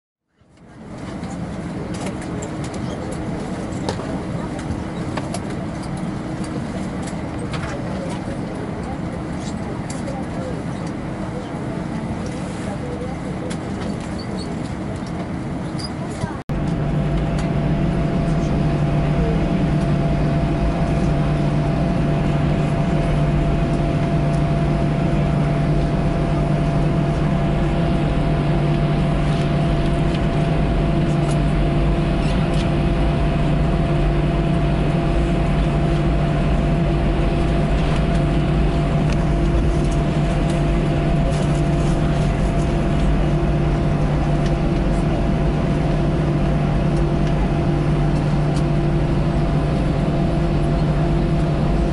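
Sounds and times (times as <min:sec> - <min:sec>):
jet engines low hum: 0:00.3 - 0:51.9.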